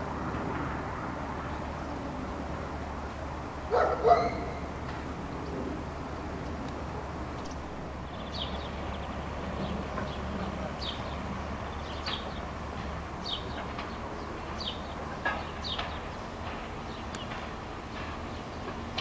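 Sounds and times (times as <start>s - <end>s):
diesel railcar rumble: 0.0s - 19.0s
small bird chirping: 7.4s - 12.4s.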